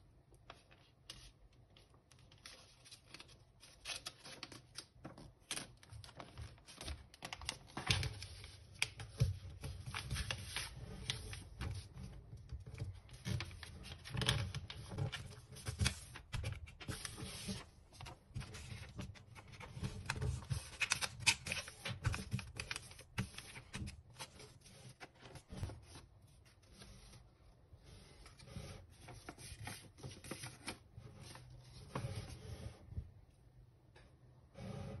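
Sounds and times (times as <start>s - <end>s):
paper rustling and crackling: 0.5s - 27.3s, 28.1s - 32.4s.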